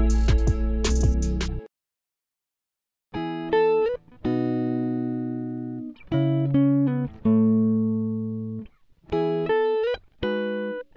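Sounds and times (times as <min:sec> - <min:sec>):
sustained instrumental chords: 0:00.0 - 0:01.6.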